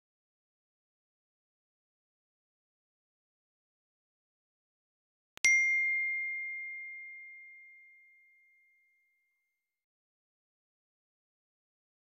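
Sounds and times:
bell ding: 5.4 - 9.1.

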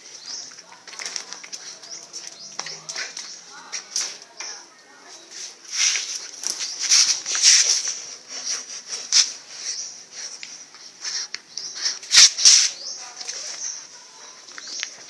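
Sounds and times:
dog sniffing and huffing: 5.3 - 12.4.

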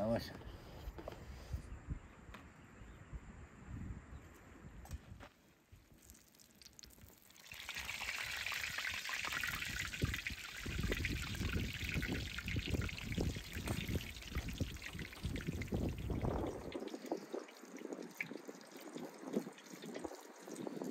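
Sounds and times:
oil sizzling and crackling: 5.9 - 20.9.

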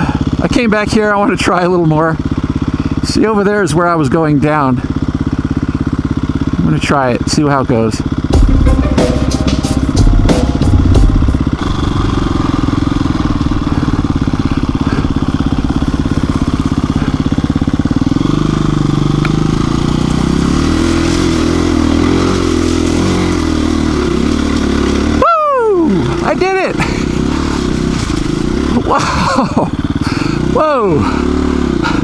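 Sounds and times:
dirt bike engine running: 0.0 - 32.0
tyres on loose gravel: 11.4 - 30.6.

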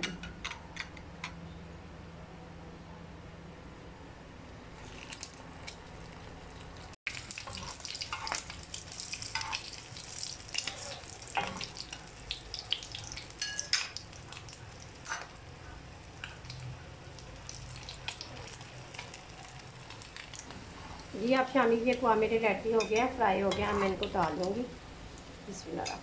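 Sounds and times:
oil spitting crackles: 4.8 - 13.3
food sizzling in hot oil: 6.8 - 24.6.

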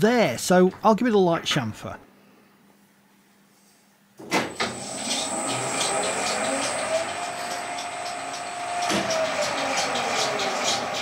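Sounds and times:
lathe motor whine: 4.5 - 11.0.

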